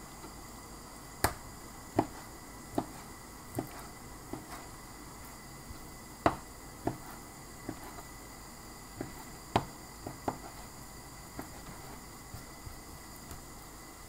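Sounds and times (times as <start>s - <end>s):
knife tapping cutting board: 6.2s - 7.1s, 9.0s - 10.6s.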